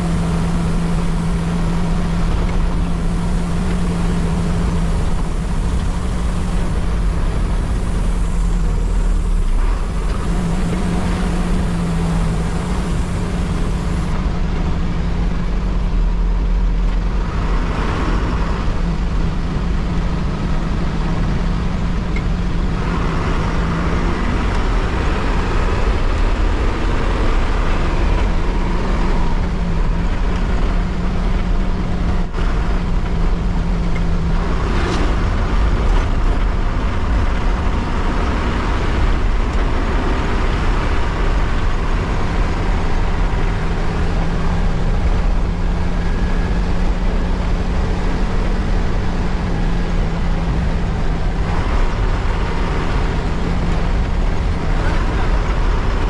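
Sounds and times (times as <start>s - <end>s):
rushing hiss: 0.0s - 14.1s
bus engine droning: 0.0s - 56.0s
rumbling road noise: 0.0s - 56.0s.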